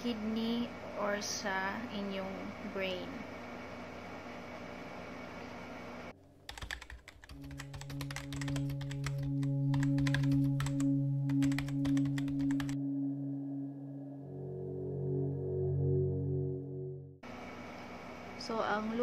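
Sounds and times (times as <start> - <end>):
keyboard typing clicks: 6.5 - 12.8
ambient music drone: 7.3 - 18.5.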